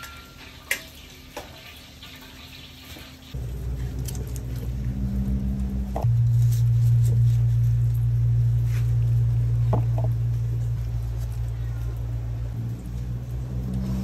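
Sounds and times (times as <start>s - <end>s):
low rumble: 3.4s - 14.0s.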